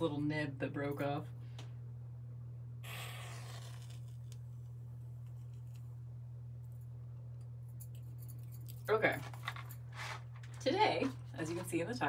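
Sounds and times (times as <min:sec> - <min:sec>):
steady low hum: 0:00.0 - 0:12.0
short hiss of burning: 0:02.8 - 0:04.0.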